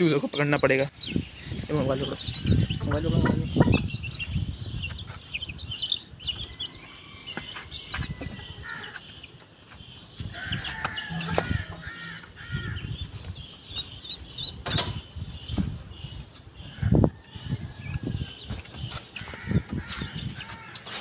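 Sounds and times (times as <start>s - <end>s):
chicks peeping: 0.0s - 21.0s
hens clucking: 10.4s - 12.9s.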